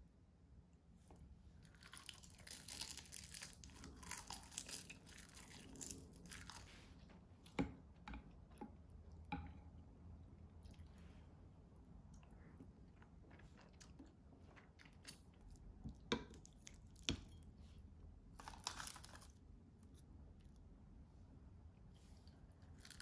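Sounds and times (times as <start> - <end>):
crunchy chewing: 1.6 - 6.9, 18.4 - 19.4.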